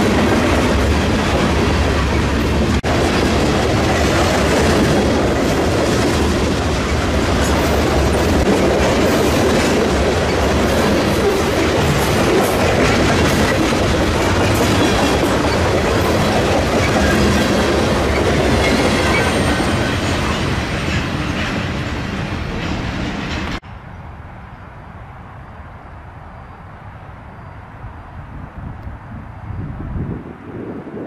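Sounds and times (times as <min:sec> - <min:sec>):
wheels clacking over rail joints: 0:00.0 - 0:23.6
distant train rumble: 0:00.0 - 0:31.0
freight train rolling past: 0:00.0 - 0:31.0.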